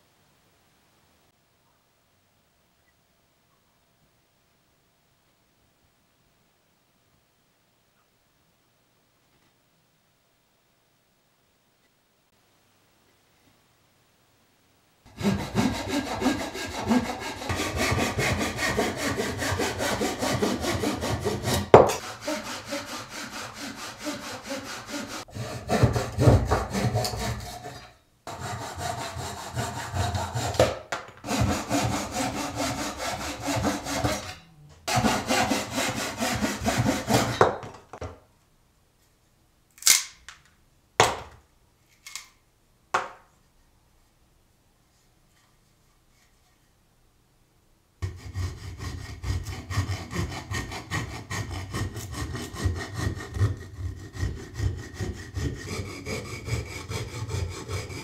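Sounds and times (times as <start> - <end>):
hand saw cutting wood: 15.1 - 37.7, 48.0 - 58.0.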